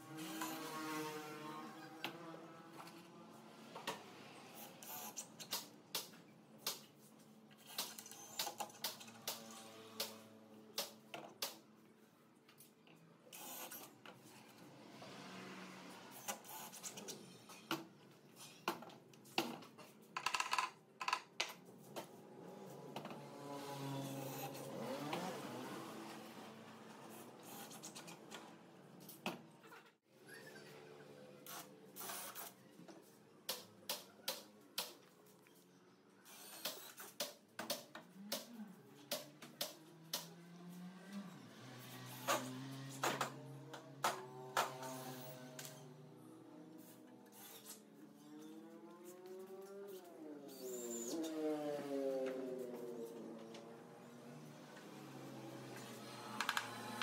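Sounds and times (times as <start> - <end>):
wooden parts and tools clicking: 17.7 - 22.1.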